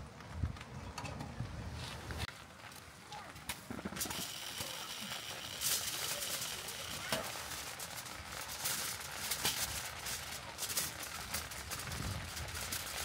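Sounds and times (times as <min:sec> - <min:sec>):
wood fire crackling in a stove: 0:00.0 - 0:13.0.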